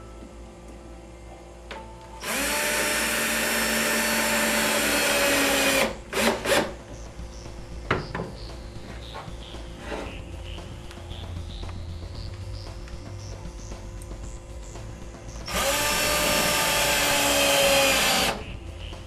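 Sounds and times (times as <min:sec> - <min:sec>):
cordless drill driving a screw: 0:02.2 - 0:06.7, 0:15.5 - 0:18.4.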